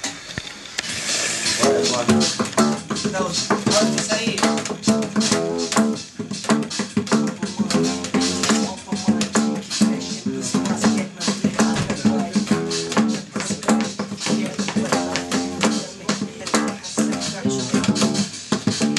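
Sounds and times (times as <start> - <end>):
steady beat: 0.9 - 18.9
plucked guitar music: 1.4 - 18.9.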